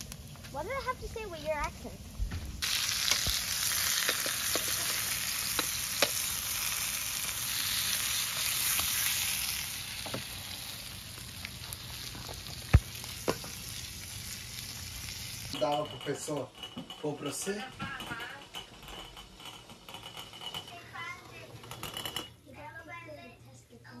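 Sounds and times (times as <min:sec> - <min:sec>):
burger sizzling in a frying pan: 0:02.5 - 0:15.6.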